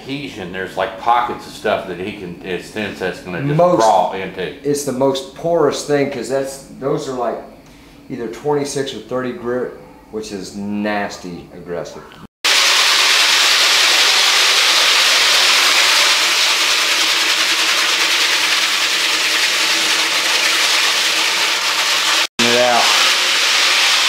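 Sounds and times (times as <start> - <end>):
man talking: 0.0 - 7.5, 8.1 - 12.3, 22.4 - 23.1
floor machine grinding concrete: 12.5 - 24.0.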